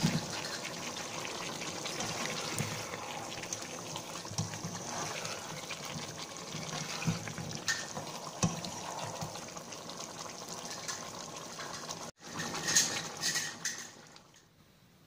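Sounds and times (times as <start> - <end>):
curry sizzling and bubbling in pan: 0.0 - 14.6
spatula scraping and knocking pan: 4.2 - 9.4.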